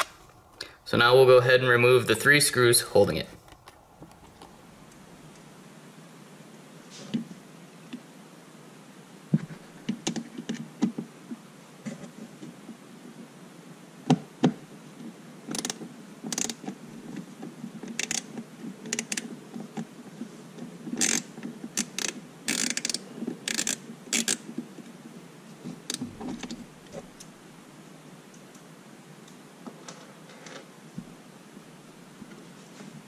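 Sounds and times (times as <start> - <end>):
screwdriver scraping plastic parts: 20.9 - 24.5.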